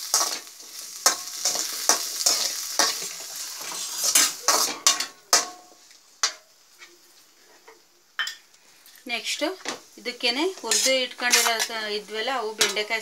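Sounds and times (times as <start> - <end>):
vegetables sizzling in oil: 0.0 - 13.0
spatula scraping metal pan: 0.1 - 5.6, 10.4 - 12.0.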